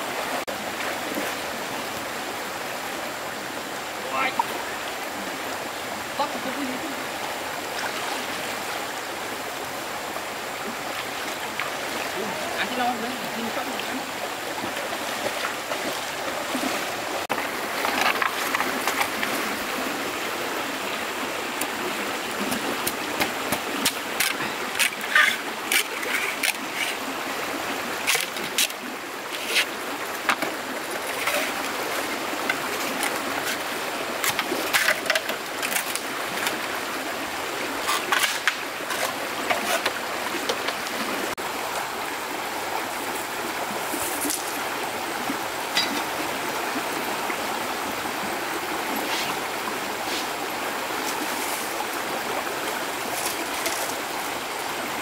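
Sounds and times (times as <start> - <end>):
stream water running: 0.0 - 55.0
sharp splashes and knocks: 22.4 - 27.0.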